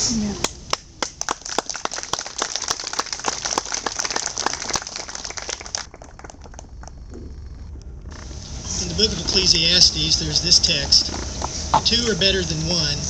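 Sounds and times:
small crowd applauding: 0:00.4 - 0:07.1.

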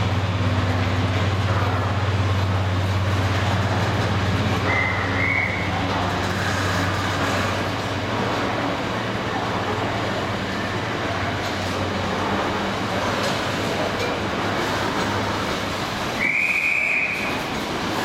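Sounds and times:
train wheels rumbling and rattling: 0:00.0 - 0:18.0
high squeal: 0:04.6 - 0:05.7, 0:16.2 - 0:17.4.

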